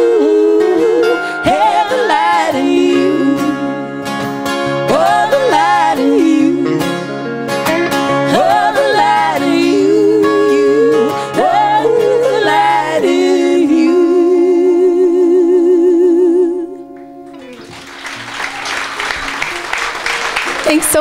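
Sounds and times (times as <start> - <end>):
person singing with vibrato: 0.0 - 17.0
ukulele and guitars playing: 0.0 - 20.8
audience applause: 17.2 - 21.0.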